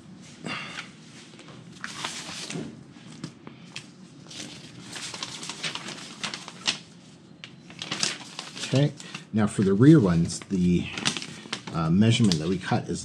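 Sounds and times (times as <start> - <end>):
paper rustling and crinkling: 0.8 - 13.0
sharp paper ticks: 4.3 - 12.7.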